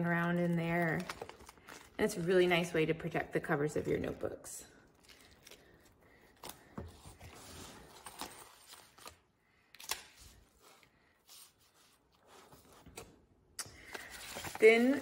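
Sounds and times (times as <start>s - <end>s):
plastic packaging rustling: 0.2s - 2.3s.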